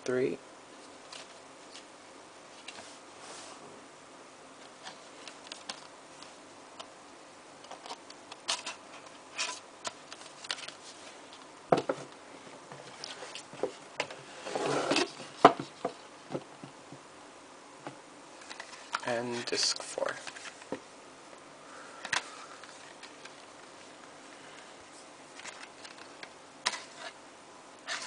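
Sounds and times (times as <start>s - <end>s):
card scraping and sliding: 14.2s - 15.8s, 25.4s - 27.2s
paper rustling: 18.4s - 20.7s, 24.9s - 27.2s.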